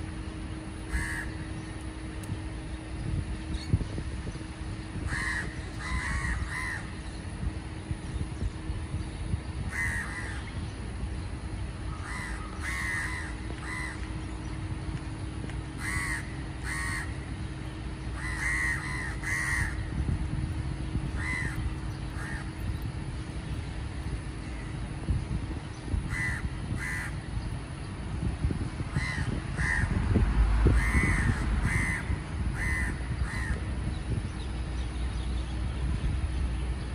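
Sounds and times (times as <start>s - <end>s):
low background rumble: 0.0s - 36.9s
crows cawing: 0.9s - 1.4s, 5.0s - 7.0s, 9.7s - 10.5s, 11.9s - 14.1s, 15.8s - 17.2s, 18.2s - 19.9s, 21.2s - 22.6s, 26.1s - 27.3s, 28.9s - 30.0s, 30.8s - 33.6s.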